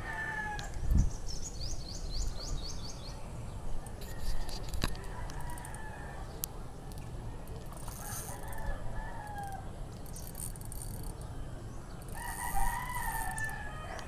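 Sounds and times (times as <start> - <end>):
rooster crowing: 0.0 - 0.7, 12.2 - 14.0.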